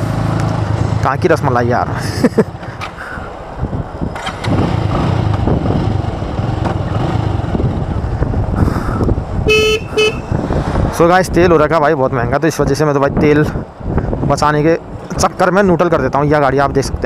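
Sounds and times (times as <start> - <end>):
motorcycle engine running: 4.1 - 8.4.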